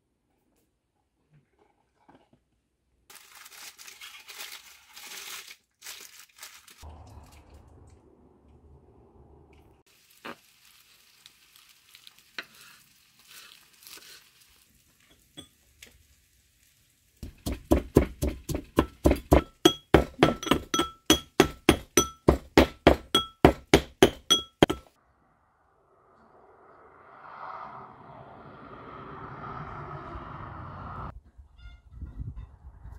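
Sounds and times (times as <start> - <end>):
brass pestle pounding in mortar: 17.2 - 24.9.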